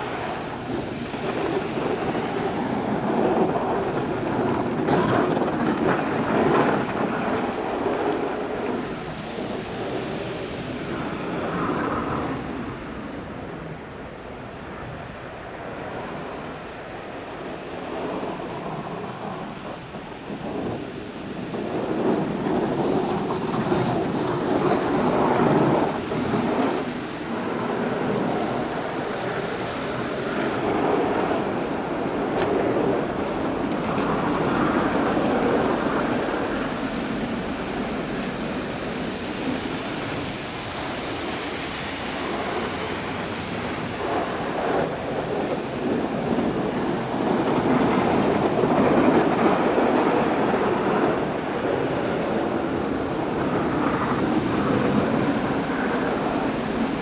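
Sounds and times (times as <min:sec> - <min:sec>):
plow blades scraping snow: 0:21.6 - 0:57.0.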